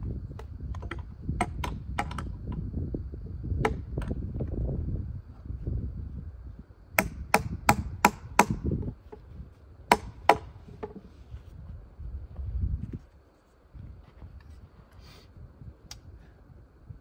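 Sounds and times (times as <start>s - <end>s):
sharp blows striking wood: 0.4s - 2.3s, 3.6s - 4.2s, 7.0s - 8.9s, 9.9s - 11.1s.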